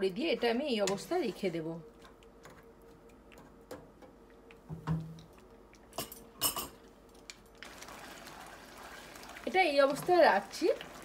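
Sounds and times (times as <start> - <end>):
simmering sauce hiss: 7.6 - 11.0.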